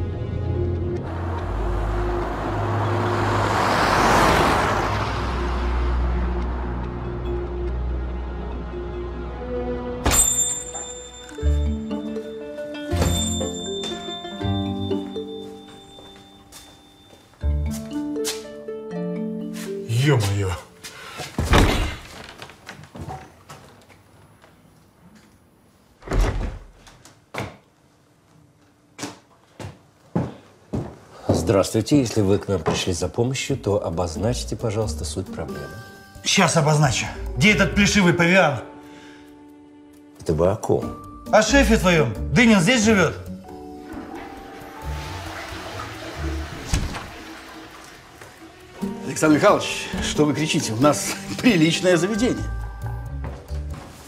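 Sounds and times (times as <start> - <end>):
car passing by: 0.8 - 8.7, 43.8 - 50.3
door banging open: 21.4 - 22.4, 26.0 - 26.8, 43.9 - 47.6.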